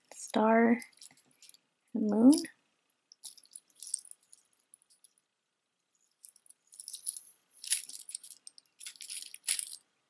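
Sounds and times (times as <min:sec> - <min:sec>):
plastic bracelet beads clicking: 0:06.3 - 0:09.8.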